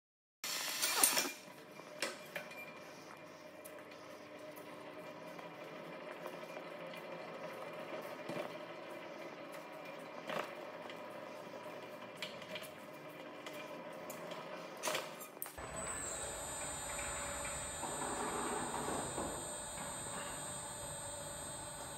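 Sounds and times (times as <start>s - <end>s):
machine humming: 15.6s - 21.9s.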